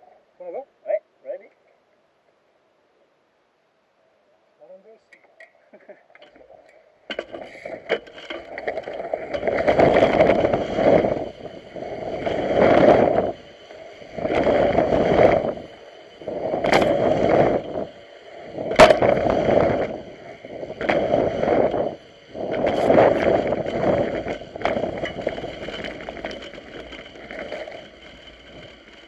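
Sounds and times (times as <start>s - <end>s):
bike knocking: 6.1s - 29.0s
tyre and wind noise: 6.2s - 29.0s.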